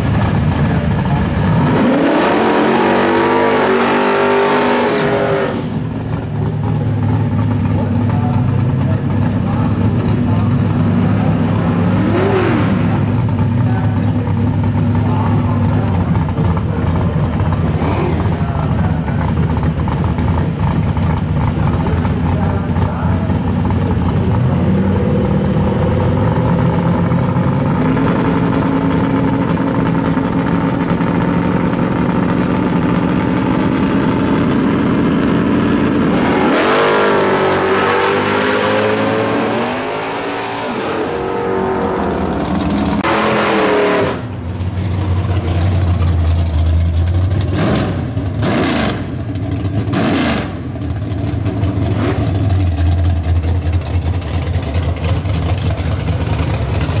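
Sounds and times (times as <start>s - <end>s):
drag car engine idling with blips: 0.0s - 57.0s
drag racing cars accelerating: 0.0s - 57.0s.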